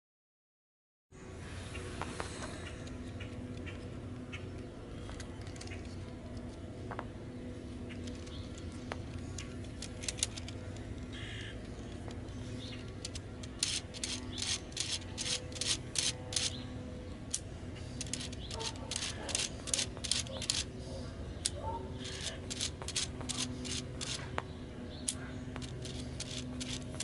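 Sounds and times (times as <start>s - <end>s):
steady low hum: 1.2s - 27.0s
plastic gearbox parts clicking: 9.4s - 11.0s, 12.8s - 16.6s, 18.0s - 20.7s, 21.4s - 24.2s, 25.6s - 27.0s.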